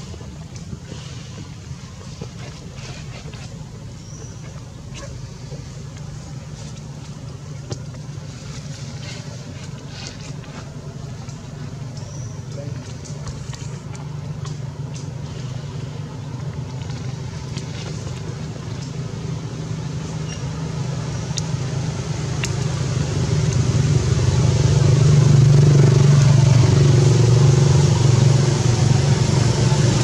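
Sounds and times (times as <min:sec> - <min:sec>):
vehicle engine droning: 0:00.0 - 0:30.0.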